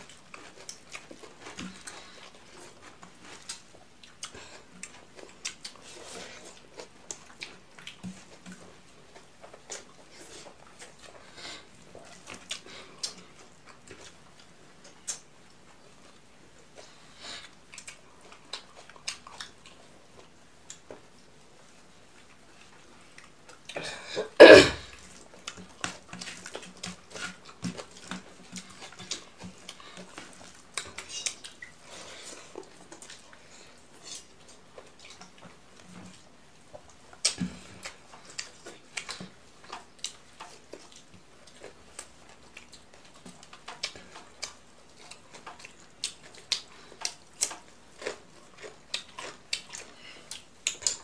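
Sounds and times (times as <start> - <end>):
chewing and lip-smacking: 0.0 - 23.8, 24.9 - 51.0
person coughing: 23.8 - 24.9
fingers mixing rice on plate: 24.9 - 51.0.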